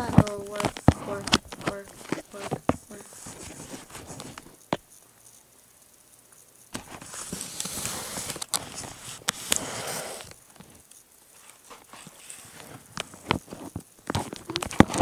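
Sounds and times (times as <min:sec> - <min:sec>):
rustling and scraping against device: 0:00.0 - 0:05.0, 0:06.8 - 0:15.0.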